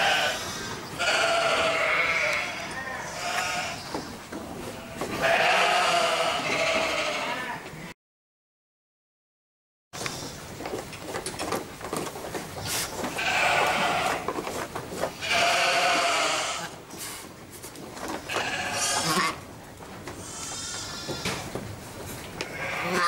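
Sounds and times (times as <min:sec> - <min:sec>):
sheep bleating: 0:00.0 - 0:04.0, 0:04.7 - 0:07.9, 0:13.1 - 0:14.2, 0:15.2 - 0:16.8, 0:18.3 - 0:19.4, 0:20.2 - 0:21.4, 0:22.4 - 0:23.0
rustling: 0:10.0 - 0:23.0.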